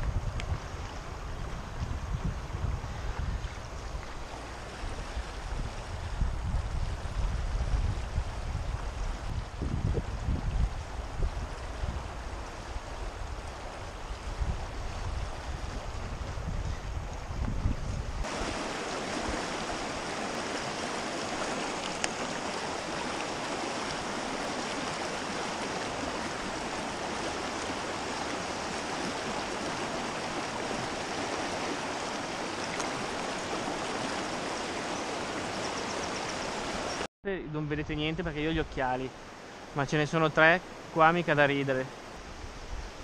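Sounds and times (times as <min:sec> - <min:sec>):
water rushing over stones: 0:18.2 - 0:37.1.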